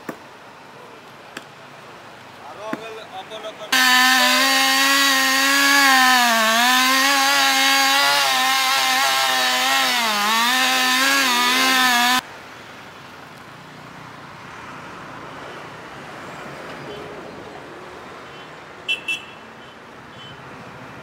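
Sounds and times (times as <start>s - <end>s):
chainsaw cutting tree trunk: 3.8s - 12.2s.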